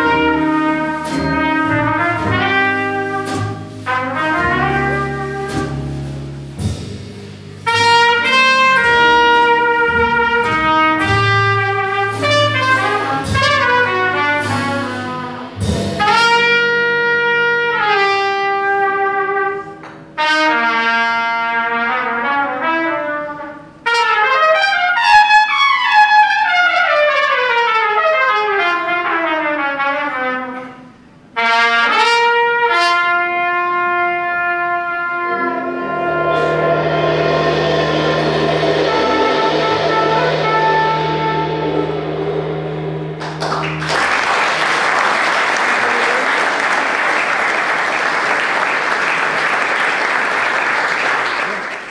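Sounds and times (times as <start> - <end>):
trumpet playing: 0.0 - 6.8, 7.6 - 51.7
guitar: 0.0 - 16.4
upright bass: 0.0 - 16.4
jazz ballad: 0.0 - 47.6.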